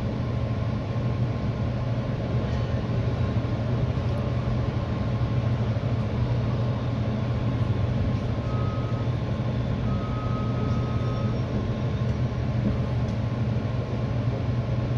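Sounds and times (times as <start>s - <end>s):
train rumbling: 0.0s - 14.9s.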